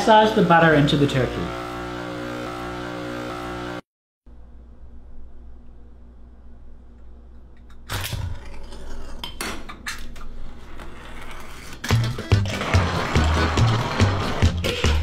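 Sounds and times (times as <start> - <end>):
low steady hum: 4.3 - 9.1.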